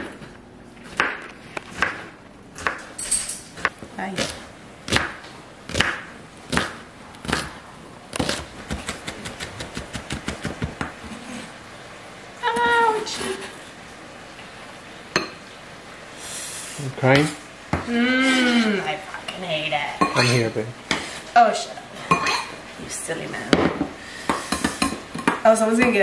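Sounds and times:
knife chopping onion on wooden board: 0.9s - 2.8s, 3.6s - 7.5s, 8.2s - 11.0s.

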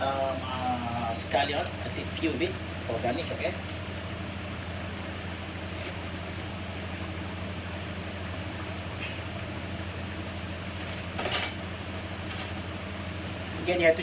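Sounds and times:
pots boiling on stove: 0.0s - 14.0s.

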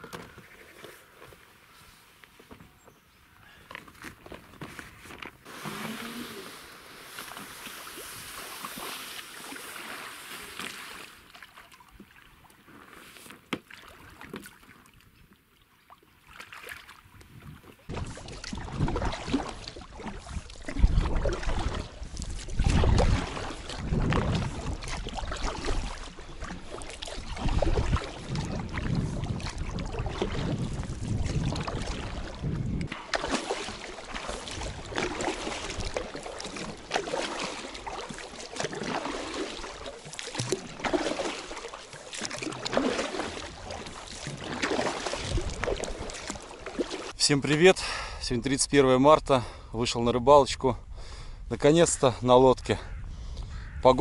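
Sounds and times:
paddle strokes in water: 0.0s - 47.3s
water washing against hull: 5.2s - 14.9s, 16.3s - 47.6s
wind rumbling on microphone: 17.2s - 33.0s, 45.2s - 46.4s, 52.5s - 53.9s.

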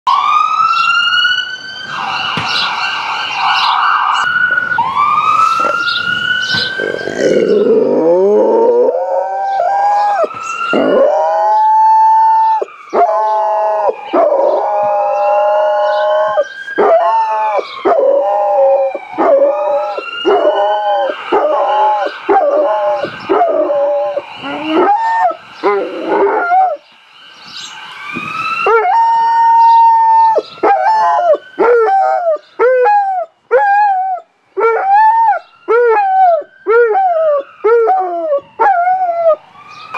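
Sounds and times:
siren wailing through phone speaker: 0.1s - 39.9s
dog howling: 6.6s - 26.8s, 28.7s - 39.4s.

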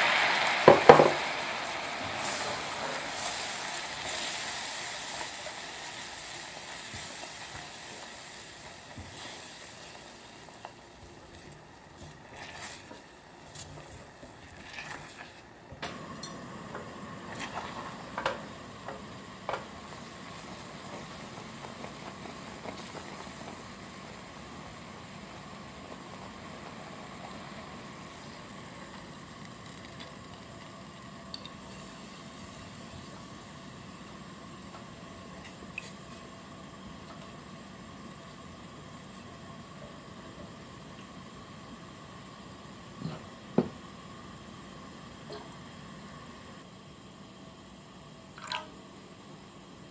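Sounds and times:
bright hiss: 0.0s - 10.9s
caramel sizzling and bubbling: 0.0s - 49.9s.

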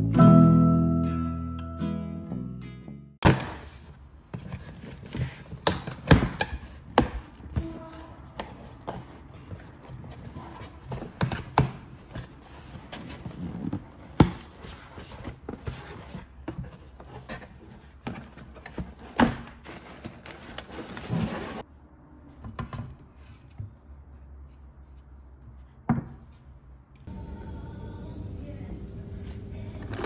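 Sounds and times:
cardboard flaps scraping and rustling: 3.3s - 21.6s.

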